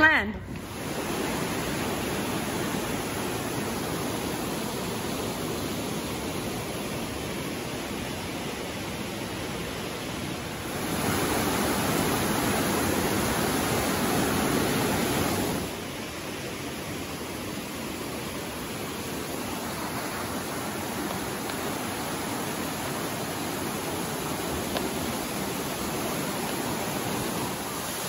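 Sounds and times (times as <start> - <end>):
river rushing over rocks: 0.0 - 28.0.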